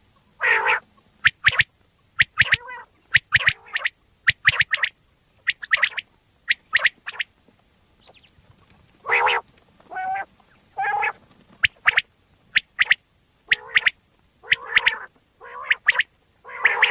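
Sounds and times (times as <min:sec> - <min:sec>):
quail calling: 0:00.4 - 0:07.3, 0:09.0 - 0:16.9.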